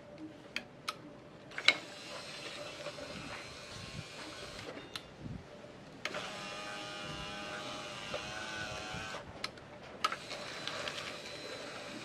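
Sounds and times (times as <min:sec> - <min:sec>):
window motor whining: 0:06.1 - 0:09.2, 0:10.1 - 0:12.0.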